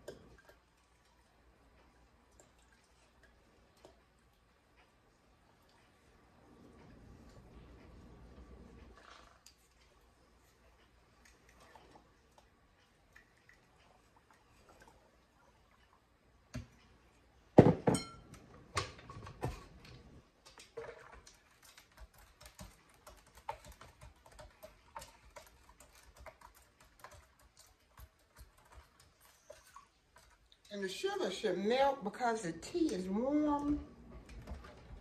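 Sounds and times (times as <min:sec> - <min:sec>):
glassware knocking on counter: 0:17.6 - 0:18.2.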